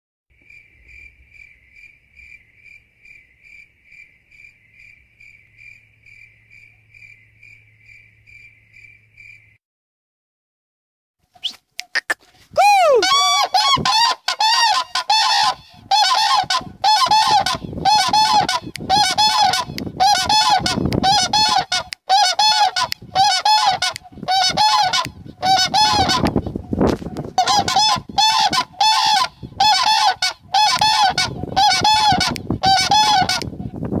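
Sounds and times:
cranes bugling calls: 0:13.0 - 0:33.5.

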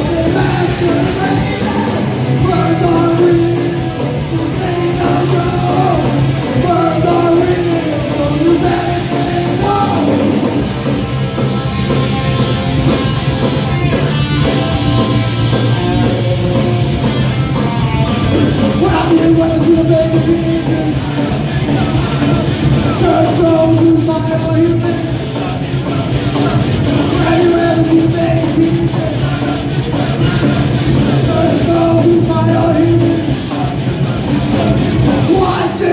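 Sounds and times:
person singing: 0:00.0 - 0:10.6, 0:18.3 - 0:35.9
drum kit: 0:00.0 - 0:35.9
electric guitars: 0:00.0 - 0:35.9.

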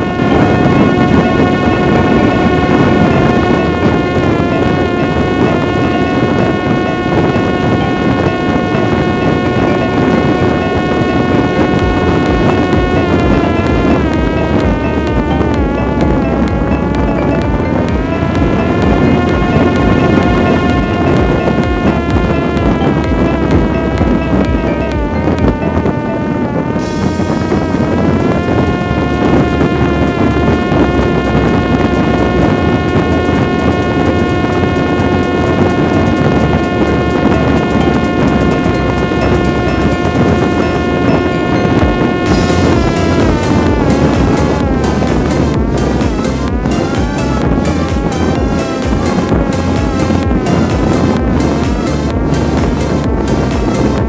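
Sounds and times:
drone motor and propeller whining: 0:00.0 - 0:54.0
wind rushing over microphone: 0:00.0 - 0:54.0.

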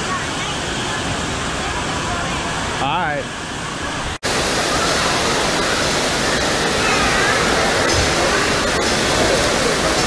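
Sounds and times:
faint voices: 0:00.0 - 0:10.0
running and splashing water: 0:03.5 - 0:10.0.

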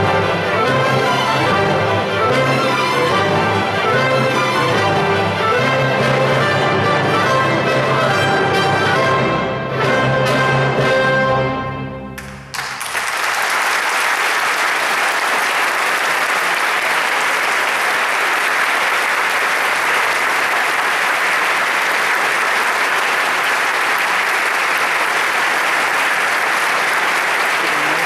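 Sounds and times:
audience applauding: 0:12.2 - 0:28.0.

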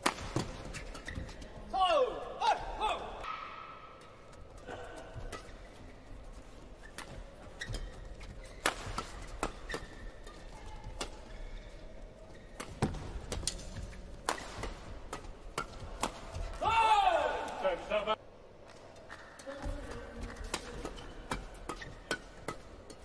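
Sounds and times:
rackets hitting shuttlecock: 0:00.0 - 0:01.2, 0:08.5 - 0:11.4, 0:12.5 - 0:16.6, 0:20.4 - 0:23.0
shoes squeaking on court: 0:00.6 - 0:01.6, 0:05.4 - 0:14.7.

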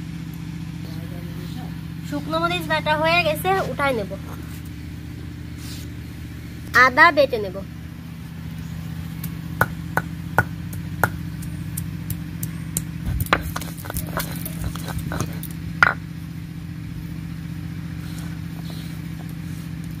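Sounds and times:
steady low hum: 0:00.0 - 0:20.0
sharp knocks and clatter: 0:09.6 - 0:16.0.

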